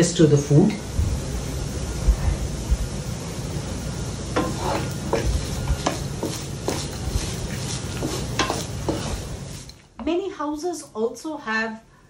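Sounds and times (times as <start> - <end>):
low sizzle of frying: 0.0 - 12.0
wooden spatula scraping a pan: 4.3 - 9.7.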